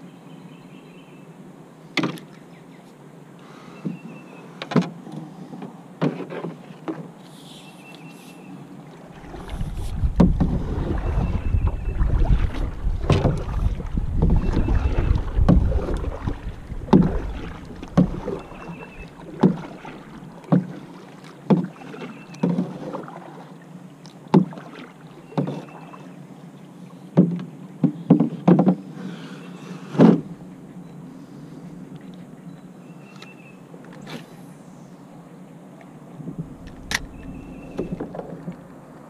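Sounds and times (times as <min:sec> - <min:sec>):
paddle strokes in water: 0:01.9 - 0:34.8, 0:35.7 - 0:39.0
wind rumble on microphone: 0:09.1 - 0:19.1, 0:36.2 - 0:38.7.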